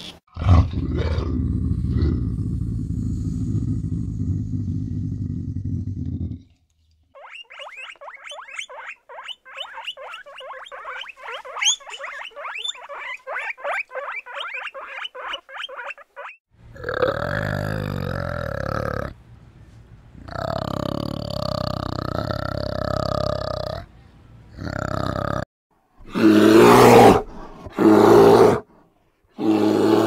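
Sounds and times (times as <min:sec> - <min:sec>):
short high animal chirps: 0:07.2 - 0:16.4.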